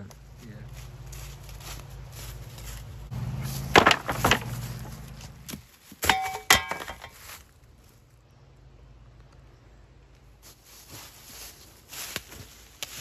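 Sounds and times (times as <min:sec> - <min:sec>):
wooden pallets knocking on ground: 0:03.5 - 0:05.0, 0:06.0 - 0:07.2
metal tools clanking: 0:06.0 - 0:07.2.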